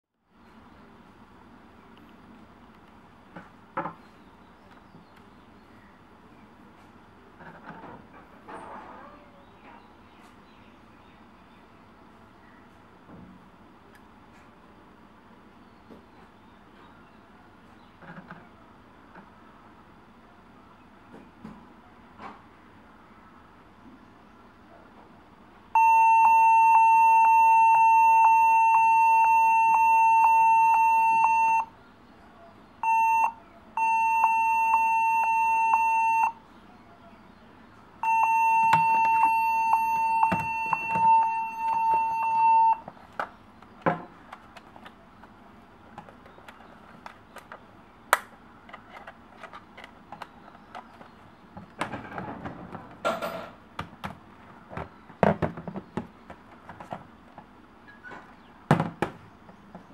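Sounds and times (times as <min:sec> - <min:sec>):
laptop high-pitched beeping: 0:25.8 - 0:31.7, 0:32.8 - 0:36.4, 0:38.0 - 0:42.8.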